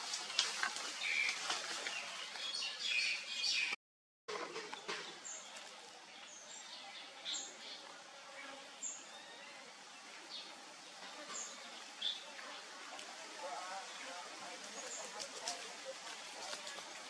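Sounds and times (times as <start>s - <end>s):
steady outdoor hiss: 4.3s - 17.0s.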